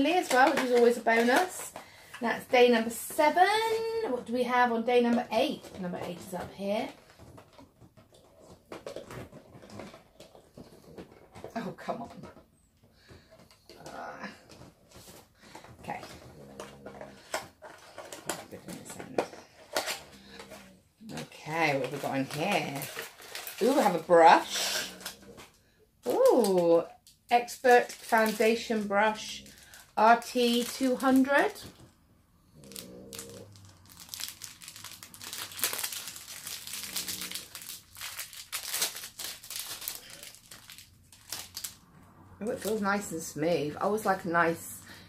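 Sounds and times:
cardboard packaging rustling: 5.3s - 32.0s, 32.6s - 42.8s
dog snoring: 16.1s - 17.3s, 24.4s - 25.6s, 32.4s - 33.6s, 36.6s - 37.6s.

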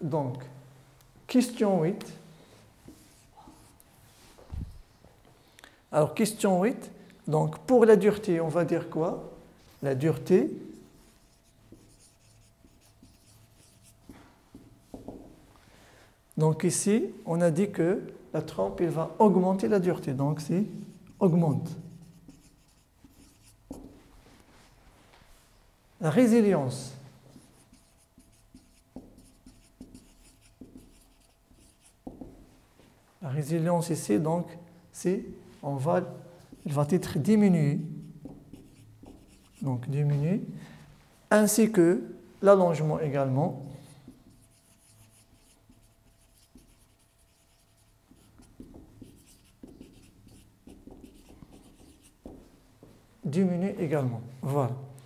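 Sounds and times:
marker squeaking on whiteboard: 10.7s - 15.4s, 20.8s - 24.0s, 27.3s - 32.4s, 37.9s - 39.7s, 44.1s - 52.5s
marker tip tapping: 14.5s - 15.4s, 32.0s - 32.4s, 48.5s - 52.4s.

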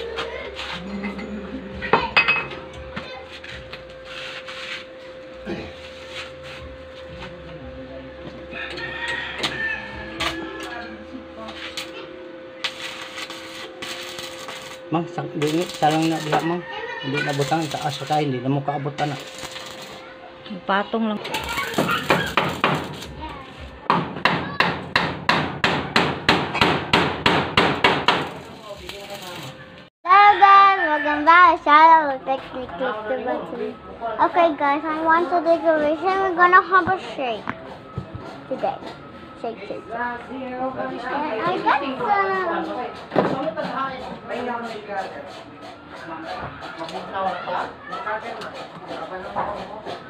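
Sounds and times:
hammer striking metal door frame: 23.9s - 28.4s.

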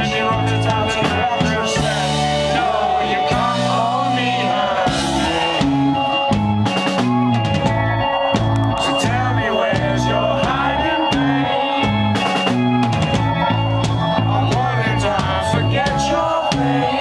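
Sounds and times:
man singing: 0.0s - 6.2s, 8.8s - 12.0s, 14.2s - 17.0s
bass notes: 0.0s - 17.0s
drums and cymbals: 0.0s - 17.0s.

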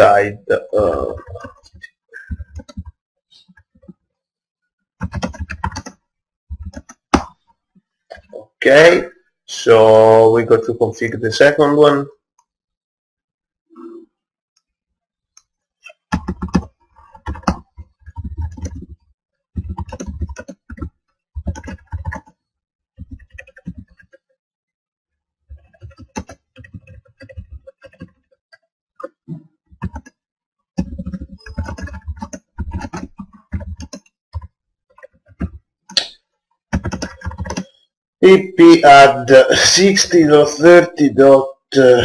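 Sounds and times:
keyboard typing: 0.8s - 4.0s, 5.0s - 7.5s, 15.4s - 22.4s, 23.0s - 24.3s, 25.5s - 30.2s, 30.8s - 37.8s.

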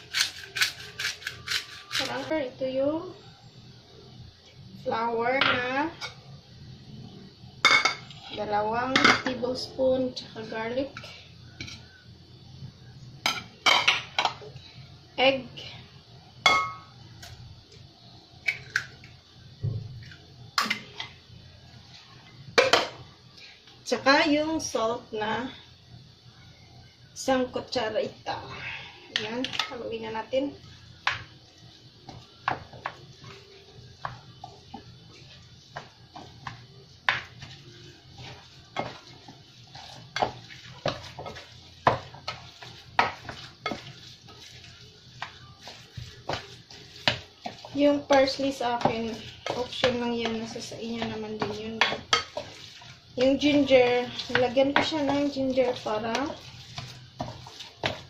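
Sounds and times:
spoon stirring meat mixture: 29.1s - 58.0s.

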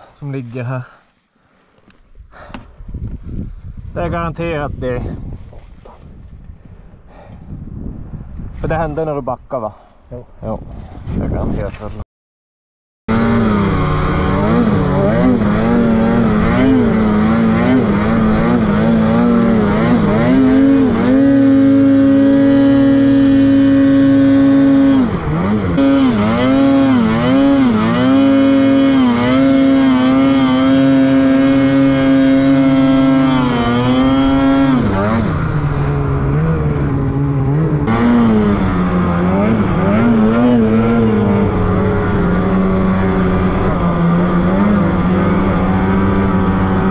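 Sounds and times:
snowmobile engine revving: 13.1s - 46.9s.

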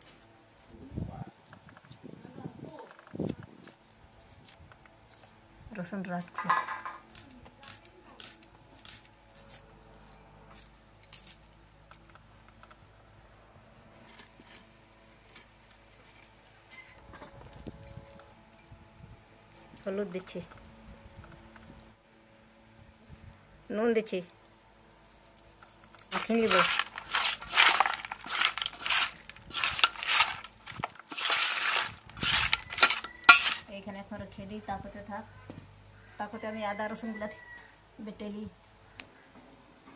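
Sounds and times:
garlic skins crackling: 7.0s - 9.7s, 25.2s - 33.8s
hand squeezing raw meat: 26.0s - 33.7s.

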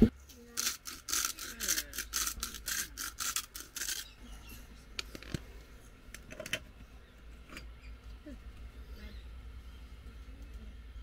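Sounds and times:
seasoning grinder grinding: 0.5s - 4.2s.

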